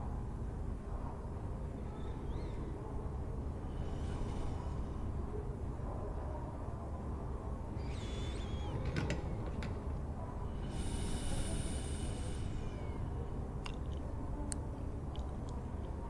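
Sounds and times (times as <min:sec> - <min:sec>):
steady low rumble: 0:02.7 - 0:07.7.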